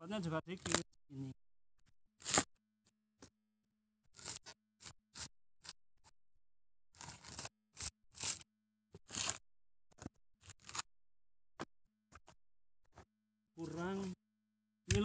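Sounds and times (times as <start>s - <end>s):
coconut husk tearing: 0.5s - 0.9s, 2.2s - 2.6s, 4.1s - 5.8s, 6.9s - 9.4s, 10.4s - 10.9s.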